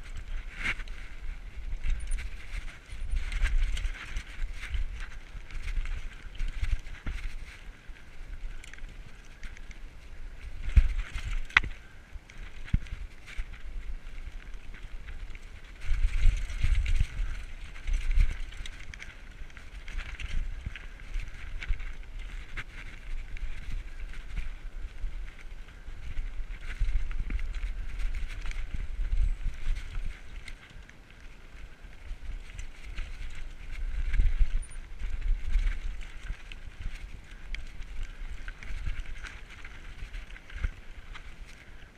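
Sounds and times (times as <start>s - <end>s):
bike rattling over rocks: 0.0s - 41.9s
wind buffeting microphone: 0.0s - 41.9s.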